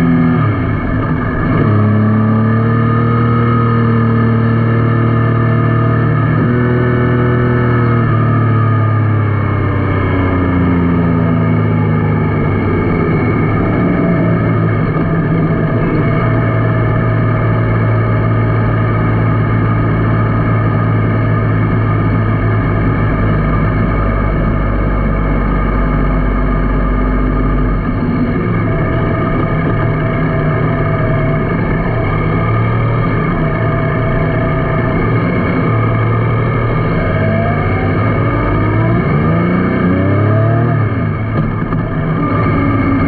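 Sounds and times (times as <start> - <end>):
motorcycle engine running: 0.0 - 43.0
road noise: 0.0 - 43.0.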